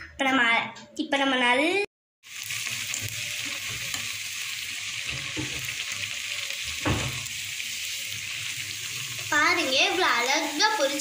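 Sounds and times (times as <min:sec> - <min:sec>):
patties sizzling in hot oil: 0:02.2 - 0:11.0.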